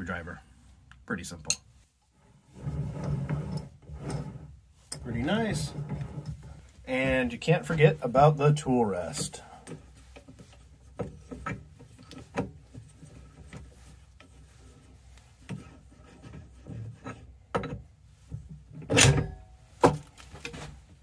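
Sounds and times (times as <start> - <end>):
metal scraping rub: 2.2 - 6.8
metal tool rest clicks and knocks: 17.5 - 17.8
sharp metal clunk: 18.9 - 19.5.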